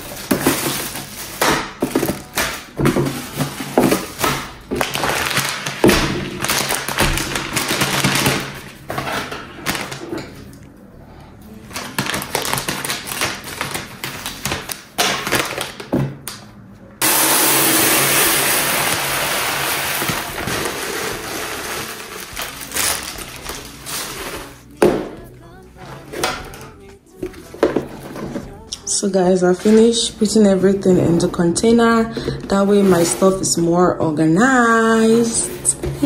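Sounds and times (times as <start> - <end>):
plastic bag crinkling: 19.0 - 24.7.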